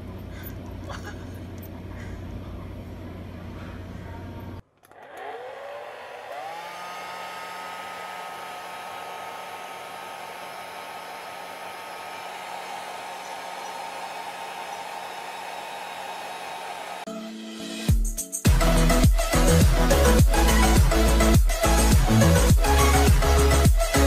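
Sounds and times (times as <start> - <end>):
hair dryer whining: 4.8 - 17.1, 18.5 - 24.0.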